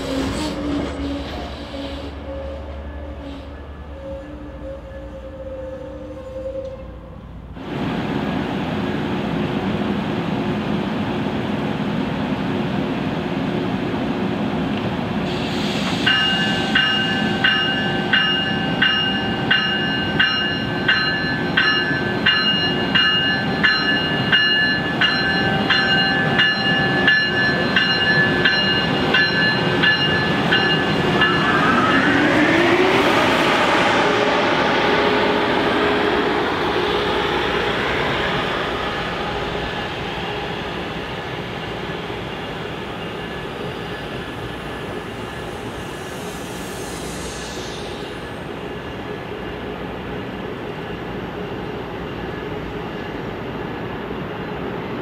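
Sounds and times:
train running noise: 0.0 - 55.0
train bell ringing: 16.0 - 32.4, 42.5 - 46.0.

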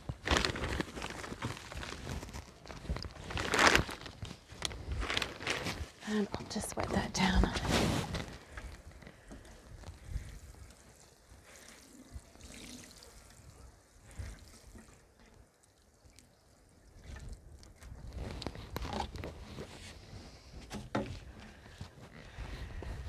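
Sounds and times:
water sprinkling onto straw: 9.7 - 18.0.

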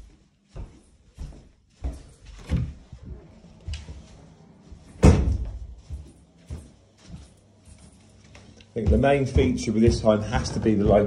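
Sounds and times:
footsteps: 0.0 - 11.0
door shutting with thud: 5.0 - 5.6.

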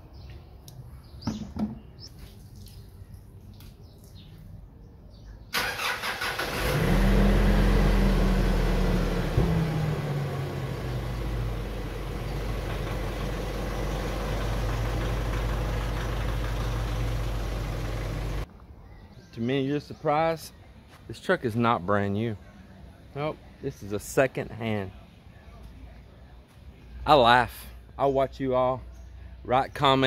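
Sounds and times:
engine cranking: 5.6 - 6.9
diesel engine idling: 5.6 - 18.5.

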